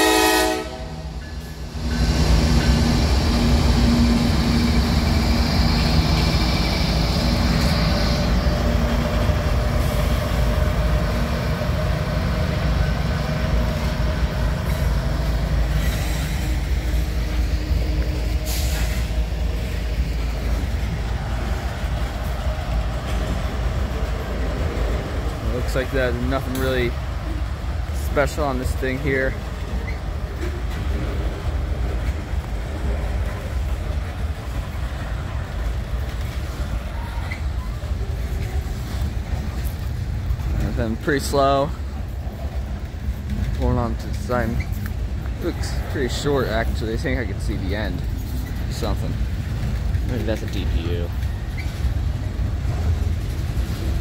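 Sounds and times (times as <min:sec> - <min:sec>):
train horn: 0:00.0 - 0:01.1
diesel locomotive hum: 0:00.0 - 0:54.0
freight car wheels rumbling on rails: 0:01.5 - 0:54.0.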